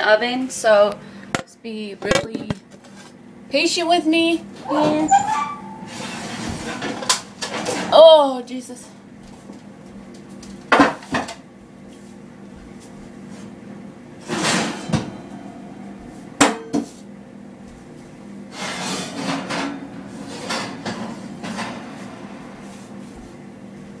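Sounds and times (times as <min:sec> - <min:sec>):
dishes and pans clattering: 0:14.2 - 0:15.3, 0:18.5 - 0:22.1
short scrapes: 0:18.5 - 0:19.4.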